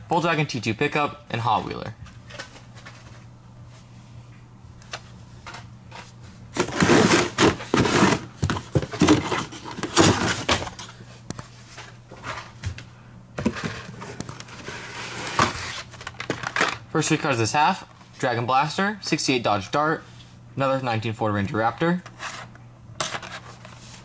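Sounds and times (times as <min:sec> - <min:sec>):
plastic packs rattling and rustling: 0:06.6 - 0:11.0, 0:13.4 - 0:16.8.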